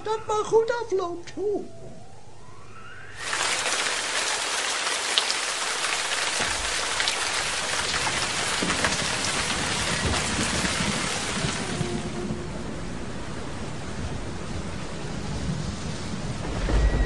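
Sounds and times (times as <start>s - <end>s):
heavy rain: 3.2s - 17.0s
low rumble: 11.5s - 17.0s.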